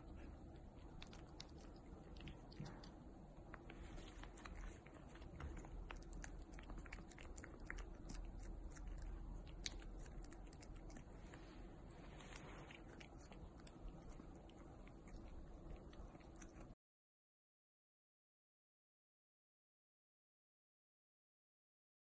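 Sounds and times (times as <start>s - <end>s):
cat licking wet clicks: 0.0s - 16.7s.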